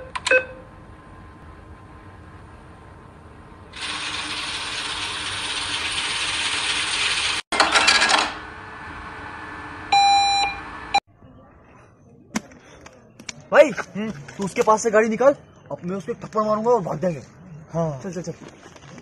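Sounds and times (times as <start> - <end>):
cash register chime: 7.6 - 8.4.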